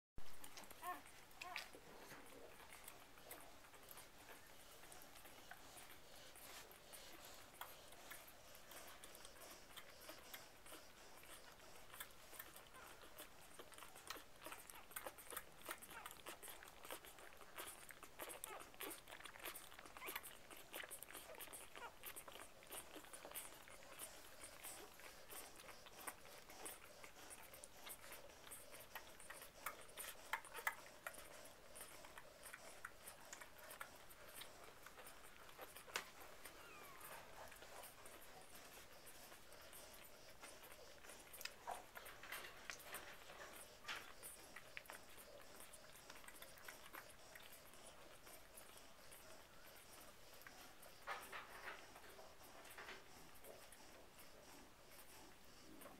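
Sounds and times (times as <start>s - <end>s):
puppies suckling: 0.2s - 55.9s.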